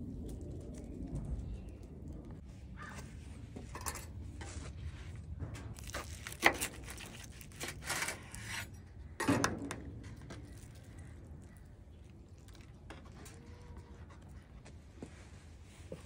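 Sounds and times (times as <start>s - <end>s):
knife crunching through food: 5.8s - 8.7s.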